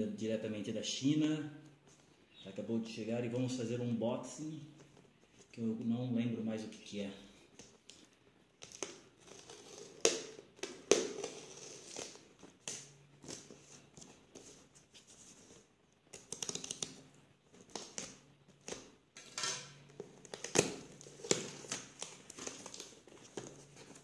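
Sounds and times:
knife slitting packing tape: 8.6s - 13.5s
cardboard and tape crinkling: 19.9s - 24.0s.

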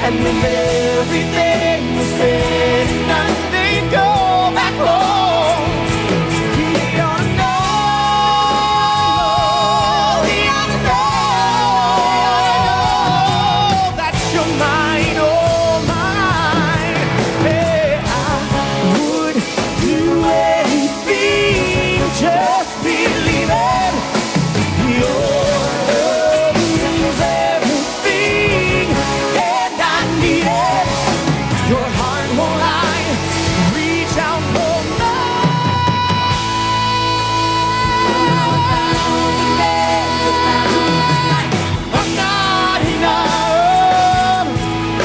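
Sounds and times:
women backing singers: 0.0s - 14.1s, 15.2s - 45.0s
drums: 0.0s - 45.0s
electric guitars: 0.0s - 45.0s
man singing lead: 0.0s - 45.0s
organ: 0.0s - 45.0s.

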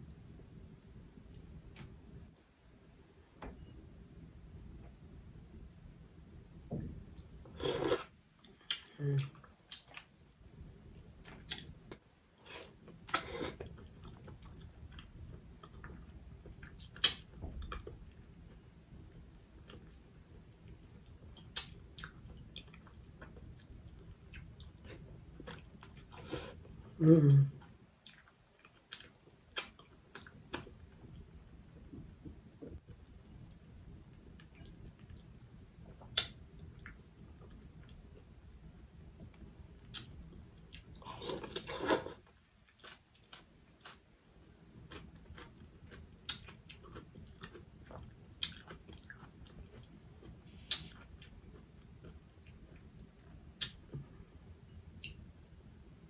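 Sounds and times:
lip smacks: 39.9s - 41.7s, 50.7s - 51.1s, 52.4s - 54.0s.

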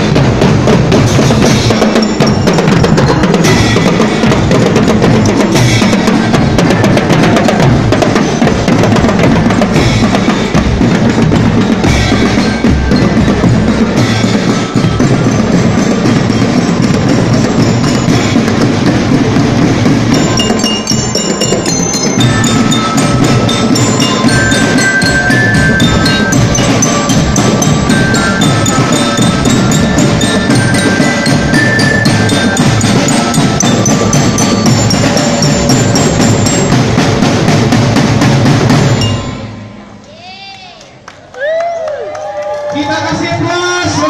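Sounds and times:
bass and snare drums: 0.0s - 39.9s
glockenspiel melody: 0.0s - 40.2s.

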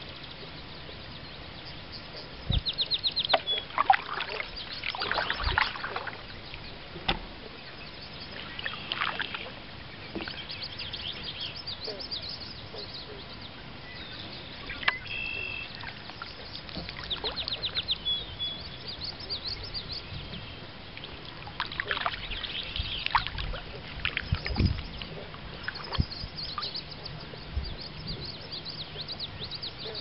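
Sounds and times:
small birds chirping: 0.0s - 6.8s, 7.4s - 30.0s
paddle strokes swishing in water: 2.1s - 7.6s, 14.5s - 30.0s.

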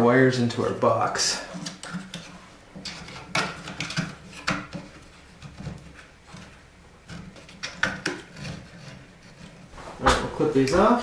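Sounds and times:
wires scraping against plastic box: 1.3s - 9.9s.

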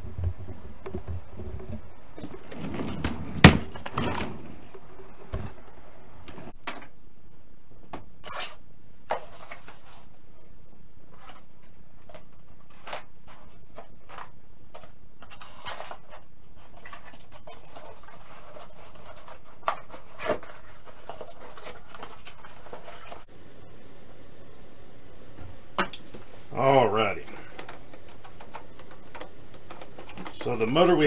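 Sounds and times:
cardboard boxes rustling: 11.1s - 23.3s.

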